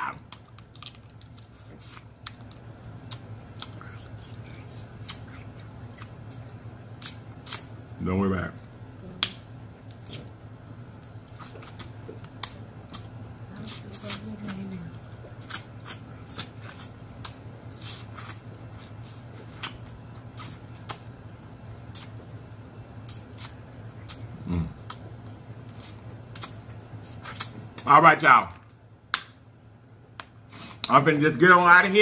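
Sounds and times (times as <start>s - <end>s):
steady low hum: 0.0s - 32.0s
crab shell cracking: 0.2s - 1.5s.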